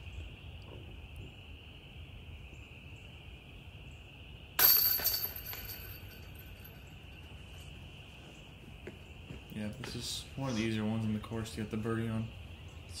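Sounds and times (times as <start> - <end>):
disc striking basket chains: 4.6 - 7.0.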